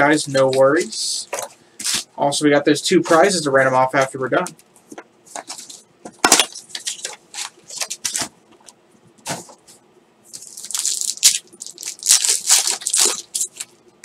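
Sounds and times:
foil pack crinkling torn open: 10.3 - 13.8.

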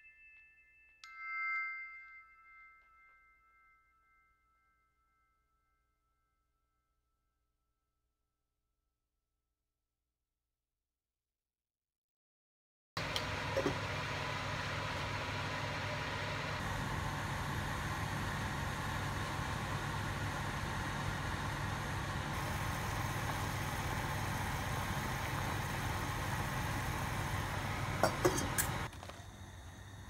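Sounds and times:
soup boiling in pot: 13.0 - 29.7
metal pot lid clinks: 28.0 - 28.9.

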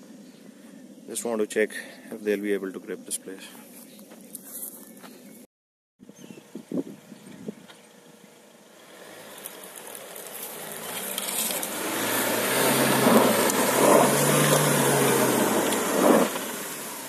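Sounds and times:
engine revving under load: 8.6 - 17.0
tyres spinning in loose dirt: 9.1 - 17.0.

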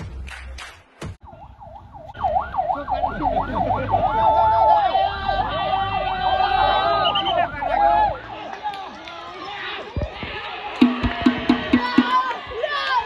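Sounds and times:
sirens wailing: 1.2 - 10.6
music: 10.8 - 12.2.

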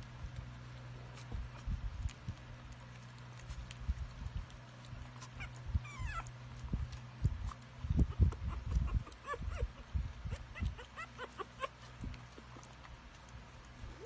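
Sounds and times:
puppy whimpering: 5.1 - 7.0, 7.8 - 12.8.

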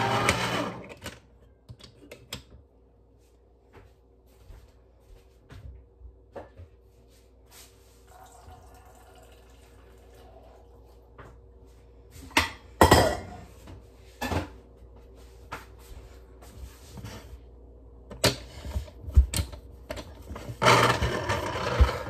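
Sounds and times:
dishes and utensils clattering: 12.4 - 13.5.

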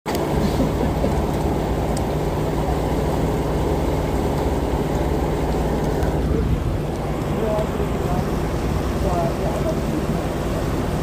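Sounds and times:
boat engine droning: 0.1 - 11.0.

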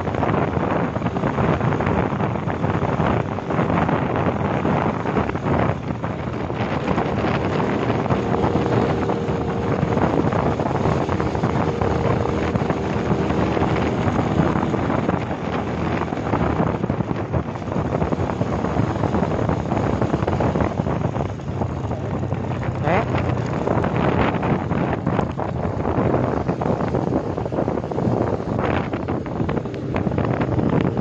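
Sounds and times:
motorbike engine hum: 0.0 - 31.0
wind rushing over microphone: 0.0 - 31.0.

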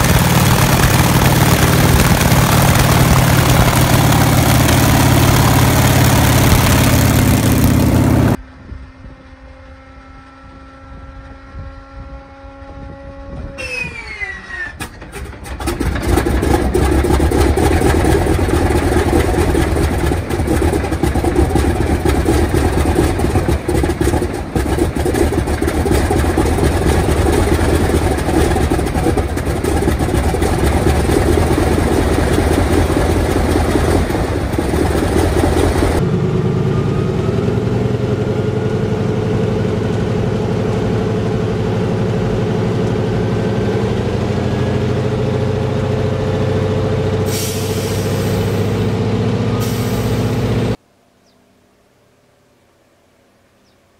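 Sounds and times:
radial aircraft engine running: 0.0 - 50.8
engine drone from inside cockpit: 29.8 - 51.3.

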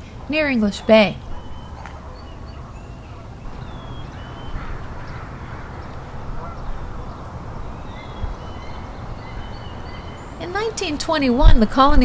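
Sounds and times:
birds chirping and calling: 0.0 - 12.0
low rumble: 2.4 - 10.4.

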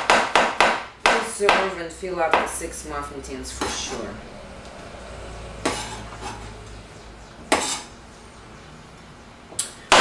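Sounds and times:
knife cutting onto cutting board: 5.6 - 6.5.

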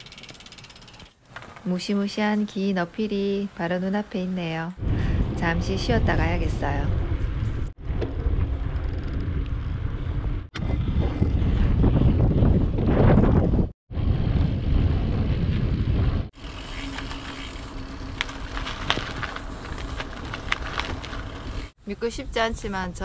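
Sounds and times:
wind rumbling on microphone: 4.8 - 23.0.

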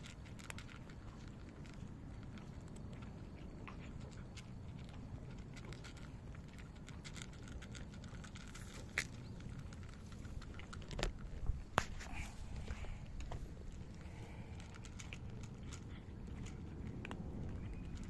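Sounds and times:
cats crunching dry kibble: 0.0 - 18.0.

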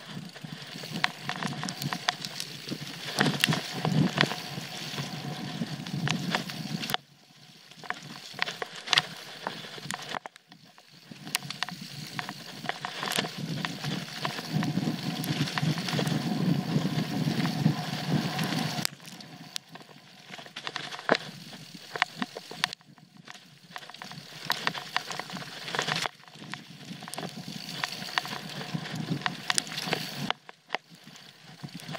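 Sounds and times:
bike tyres rumbling on dirt: 0.0 - 31.9
bike clacking and rattling: 0.1 - 6.9.

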